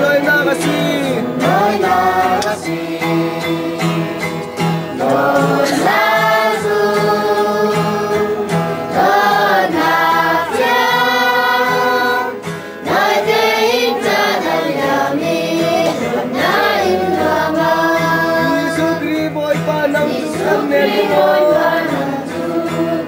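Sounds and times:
choir singing: 0.0s - 23.0s.

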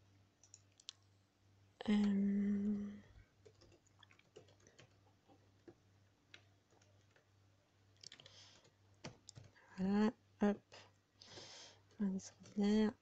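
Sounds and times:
keystrokes on computer keyboard: 0.4s - 0.9s, 3.4s - 7.3s, 8.0s - 9.6s.

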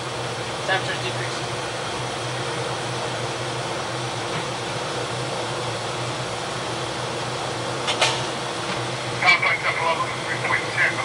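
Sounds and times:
constant low machinery hum: 0.0s - 11.0s
ventilation rushing noise: 0.0s - 11.0s.

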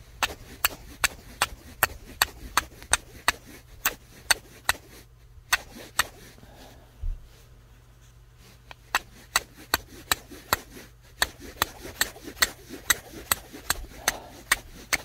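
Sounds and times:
steel striking flint: 8.8s - 15.0s.

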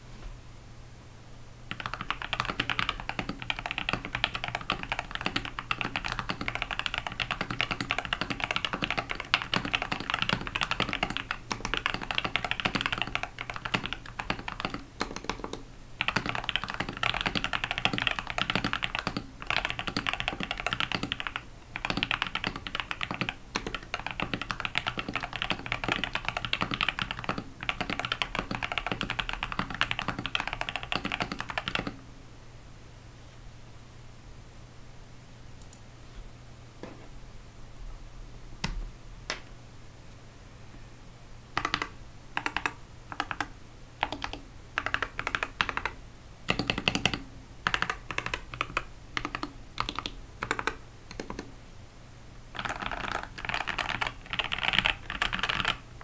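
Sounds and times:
mechanical keyboard typing: 1.7s - 32.0s, 41.6s - 51.5s, 52.6s - 55.8s.

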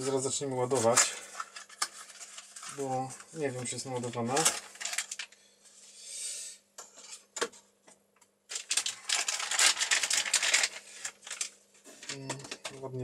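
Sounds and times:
plastic bag crinkling: 0.8s - 5.4s, 8.5s - 13.0s.

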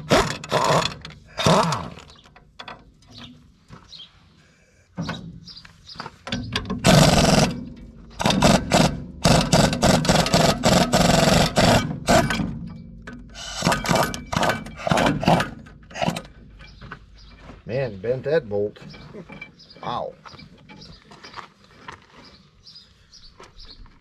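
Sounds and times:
pneumatic impact wrench hammering: 0.0s - 3.3s, 6.2s - 16.8s.

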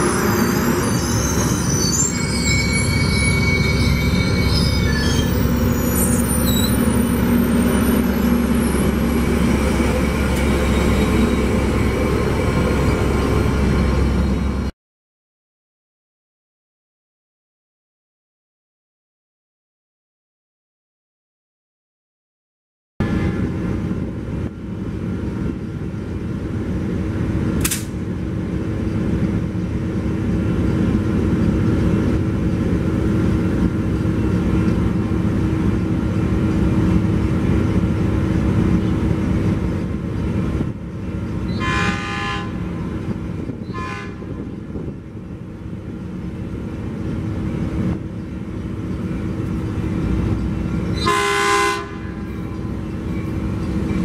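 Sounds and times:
train rumbling: 0.0s - 14.7s, 23.0s - 54.0s
train horn blasts: 41.5s - 43.0s, 43.6s - 44.6s, 51.0s - 52.4s.

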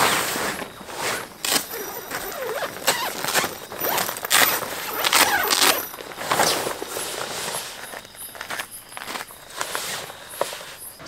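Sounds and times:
nylon tent fabric rustling: 0.0s - 11.0s.

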